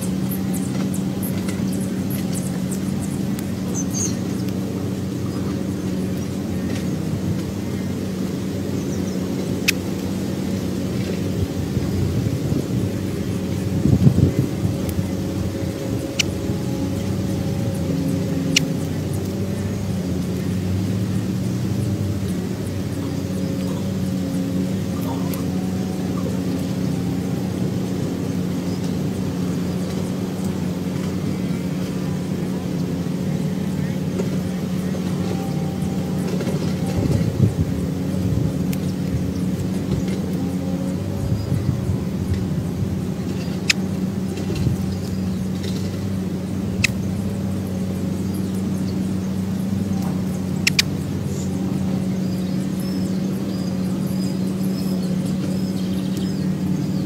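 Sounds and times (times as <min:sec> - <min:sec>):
low mechanical hum: 0:00.0 - 0:57.0
faint clicks: 0:49.9 - 0:51.4.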